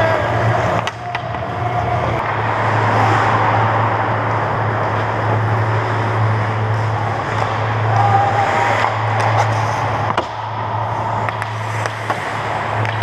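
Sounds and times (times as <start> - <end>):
steady low hum: 0.0 - 13.0
skate blades scraping ice: 4.9 - 13.0.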